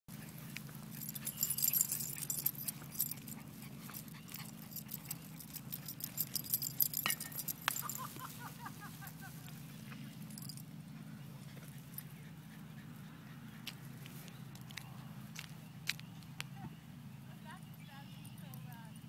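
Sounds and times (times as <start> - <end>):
dog harness tags jingling: 1.0 - 8.3, 10.2 - 10.6.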